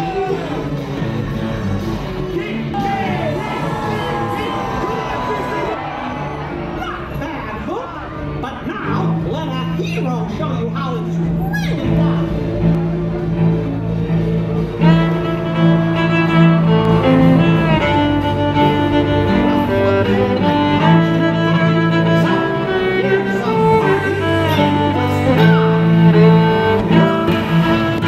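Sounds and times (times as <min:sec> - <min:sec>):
orchestral music with bowed strings: 0:08.7 - 0:28.0.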